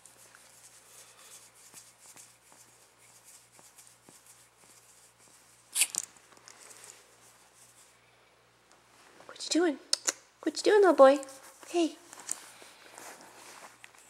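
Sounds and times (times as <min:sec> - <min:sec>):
soft rustling of fur: 0:00.0 - 0:05.7, 0:06.3 - 0:08.0, 0:11.0 - 0:14.0.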